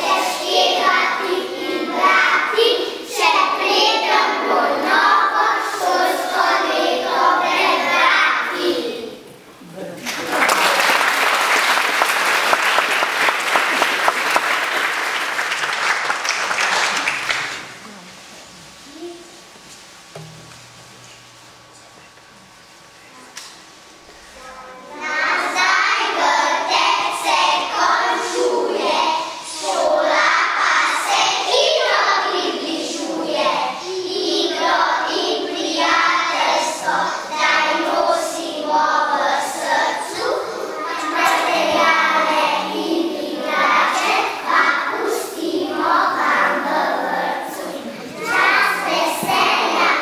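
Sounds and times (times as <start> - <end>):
young children singing in unison: 0.0 - 9.4, 24.4 - 50.0.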